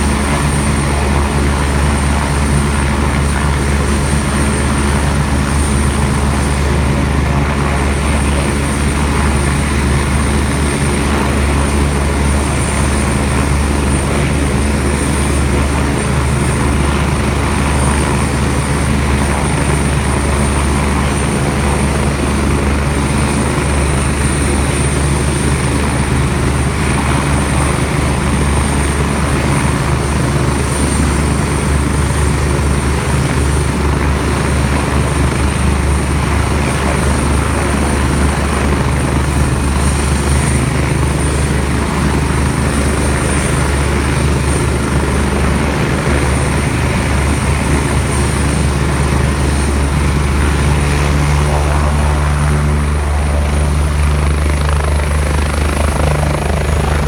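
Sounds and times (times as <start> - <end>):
helicopter rotor thrum: 0.0 - 57.0
helicopter turbine whine: 0.0 - 57.0.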